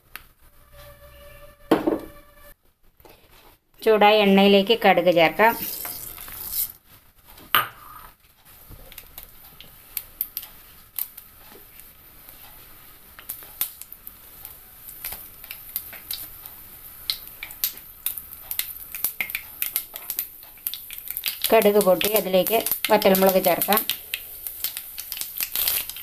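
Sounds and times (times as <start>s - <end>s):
mustard seeds sizzling and popping: 4.4s - 6.8s, 8.5s - 26.0s.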